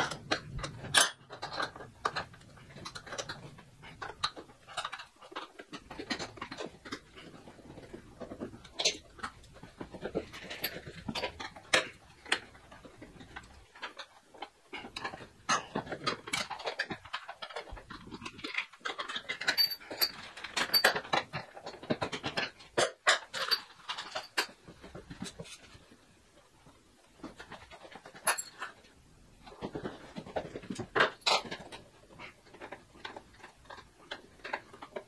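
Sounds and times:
metallic clinks of bolts: 0:19.5 - 0:21.0.

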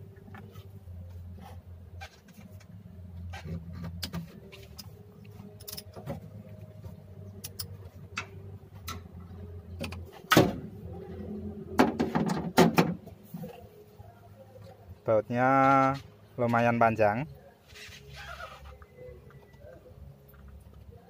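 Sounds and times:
low steady hum: 0:00.0 - 0:21.0
metal clicks and clinks of wrench: 0:05.6 - 0:06.0.

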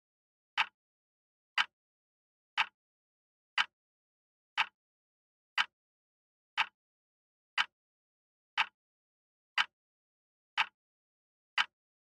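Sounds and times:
wall clock ticking: 0:00.6 - 0:00.8, 0:01.6 - 0:01.8, 0:02.6 - 0:02.8, 0:03.6 - 0:03.8, 0:04.6 - 0:04.8, 0:05.6 - 0:05.8, 0:06.6 - 0:06.8, 0:07.6 - 0:07.8, 0:08.6 - 0:08.8, 0:09.6 - 0:09.8, 0:10.6 - 0:10.8, 0:11.6 - 0:11.8.

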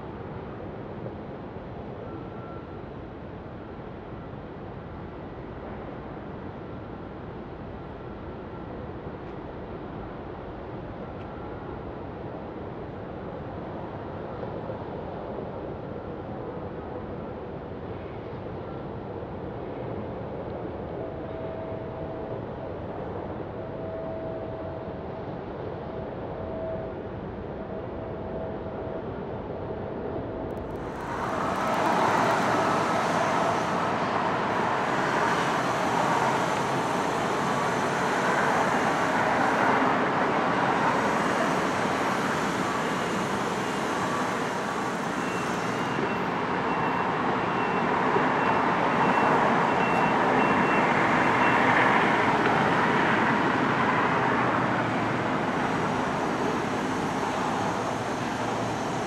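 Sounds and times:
road traffic passing: 0:30.6 - 0:59.0.

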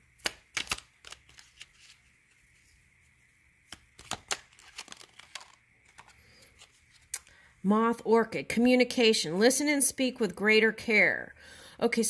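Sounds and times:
cards being shuffled: 0:00.1 - 0:02.8, 0:03.7 - 0:07.3.

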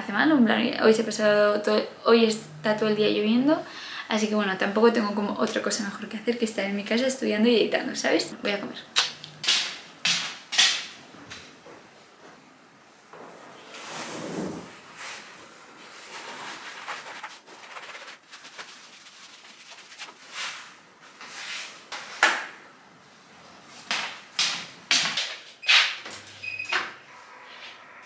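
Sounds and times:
mat rustling: 0:13.2 - 0:22.2.

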